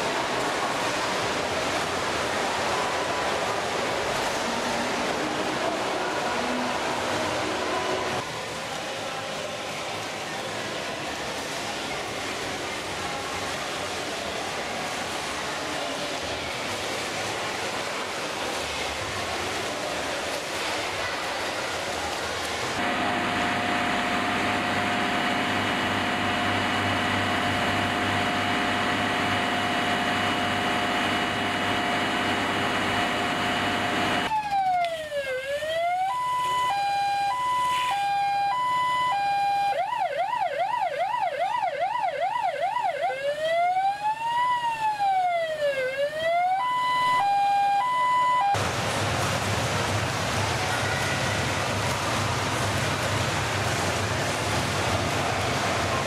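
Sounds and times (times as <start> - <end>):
swimmers splashing in a pool: 0.0 - 38.6, 48.5 - 56.0
steady tone: 22.8 - 34.3
fire engine siren cycling: 22.8 - 48.6.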